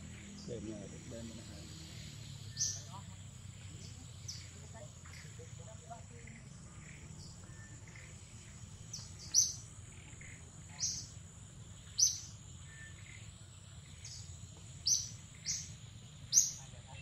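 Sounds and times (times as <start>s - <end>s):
bird chirping: 0.0s - 17.0s
insect drone: 0.0s - 17.0s.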